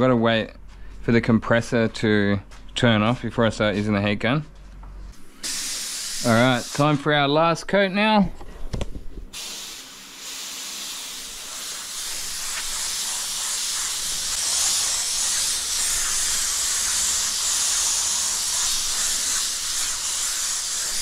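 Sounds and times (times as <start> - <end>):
spray gun hissing: 5.2 - 7.2, 9.3 - 21.0.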